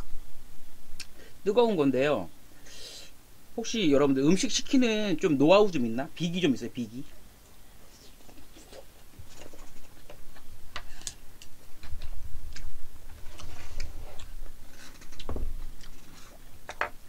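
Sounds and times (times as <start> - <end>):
chewing and mouth smacks: 15.0 - 16.5.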